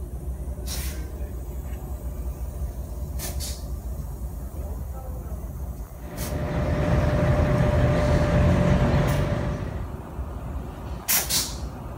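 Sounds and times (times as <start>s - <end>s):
diesel locomotive engine rumbling: 0.0s - 11.9s
compressed air hisses: 0.6s - 3.9s, 11.1s - 11.7s.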